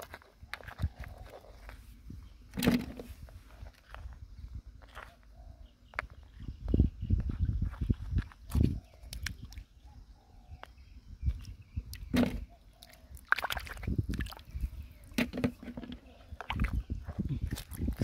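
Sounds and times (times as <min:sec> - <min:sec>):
water sloshing: 0:11.9 - 0:18.0.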